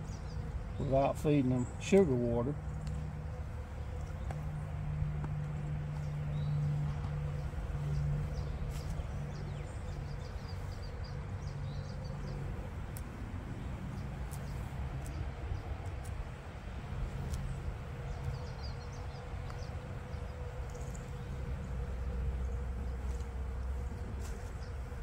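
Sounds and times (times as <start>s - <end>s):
small birds chirping: 0.0s - 25.0s
steady low hum: 0.0s - 25.0s
scratcher raking wax cappings: 5.2s - 25.0s.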